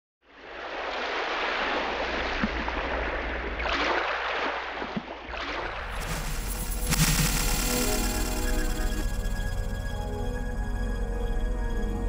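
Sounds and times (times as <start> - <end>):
sea water rushing: 0.3 - 9.7.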